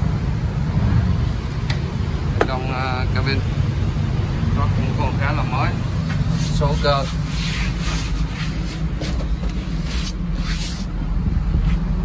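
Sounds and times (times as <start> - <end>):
hand rubbing on plastic: 6.1 - 10.9.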